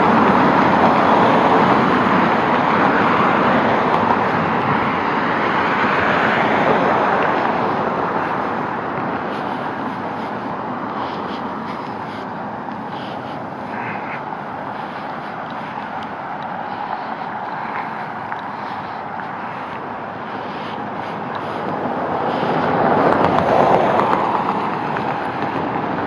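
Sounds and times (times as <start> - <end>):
road traffic rushing by: 0.0 - 26.0.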